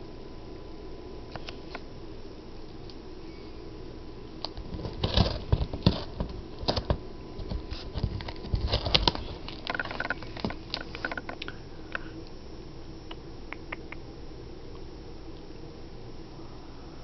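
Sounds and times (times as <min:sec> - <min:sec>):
cat chewing cardboard: 0:04.5 - 0:10.9.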